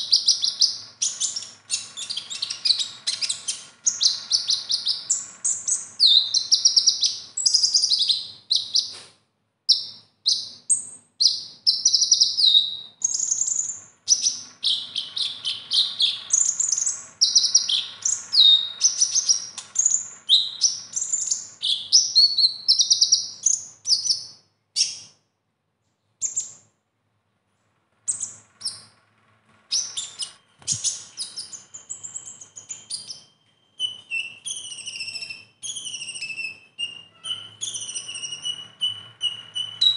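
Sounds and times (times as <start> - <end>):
bird chirping and trilling: 0.0 - 9.0, 9.7 - 25.2, 26.0 - 26.7, 28.0 - 29.0, 29.7 - 39.9.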